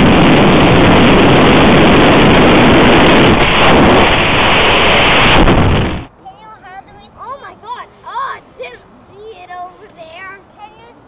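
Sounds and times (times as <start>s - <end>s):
wind rushing: 0.0s - 6.1s
propeller noise: 0.0s - 11.0s.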